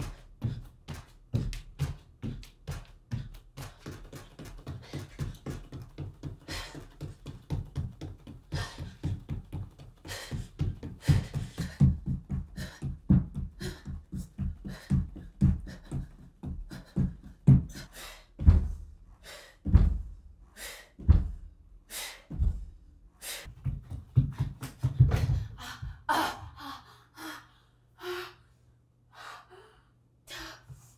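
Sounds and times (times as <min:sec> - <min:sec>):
bare feet thudding on wooden floor: 0:00.4 - 0:17.8, 0:18.4 - 0:18.9, 0:19.6 - 0:20.2, 0:23.5 - 0:25.8.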